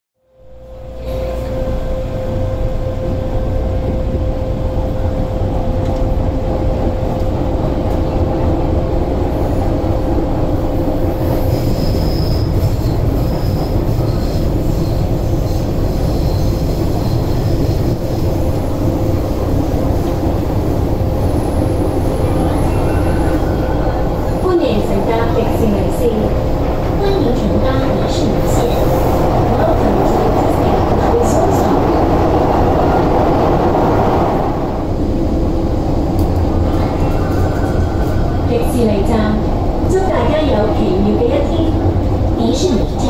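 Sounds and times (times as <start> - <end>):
train wheels rumbling: 0.8 - 43.0
high wheel squeals: 11.3 - 17.9, 22.2 - 24.4.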